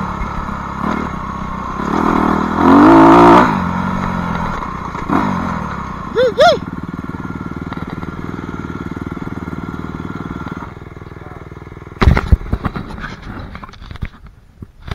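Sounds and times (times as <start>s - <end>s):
dirt bike engine idling: 0.0s - 13.6s
loud knocks and clatter: 12.0s - 14.0s.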